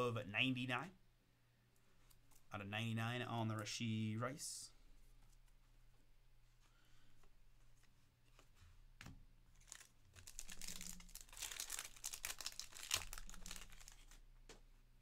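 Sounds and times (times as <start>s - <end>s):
foil pack tearing and crinkling: 9.6s - 14.2s.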